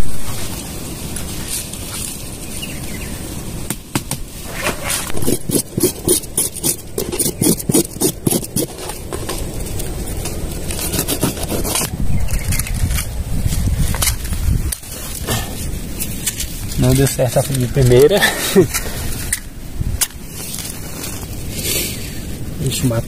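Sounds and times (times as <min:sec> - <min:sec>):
quick scraping strokes: 0:04.4 - 0:09.5, 0:10.7 - 0:16.6.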